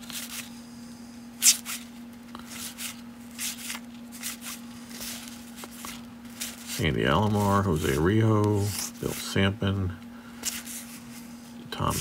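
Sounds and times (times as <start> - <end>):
low steady hum: 0.0 - 12.0
cards sliding off a stack: 10.4 - 11.3.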